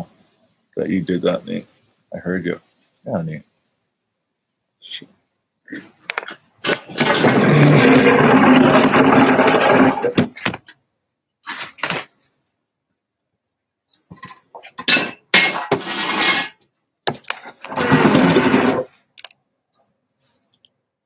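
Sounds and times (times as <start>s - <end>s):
fabric rubbing on microphone: 6.7s - 10.3s, 17.4s - 19.0s.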